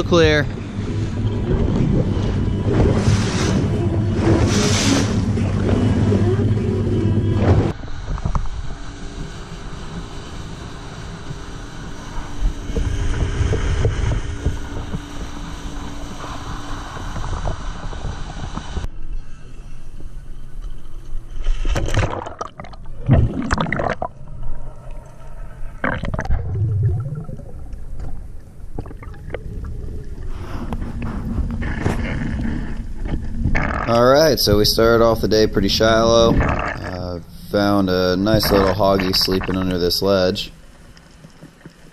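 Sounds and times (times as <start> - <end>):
motorboat engine at speed: 0.0 - 18.9
underwater bubbling and gurgling: 0.0 - 41.9
wind and spray: 0.6 - 5.6.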